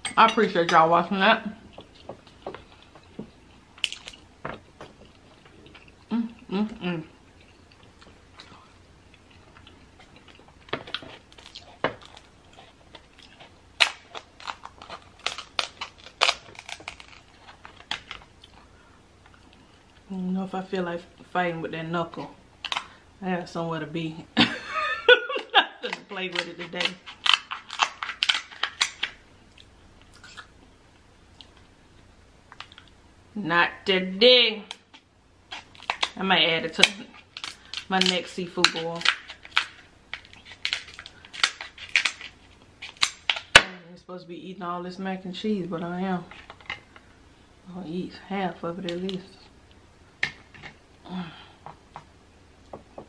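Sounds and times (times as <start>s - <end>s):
scissors cracking crab shell: 25.9s - 29.2s, 36.8s - 43.7s.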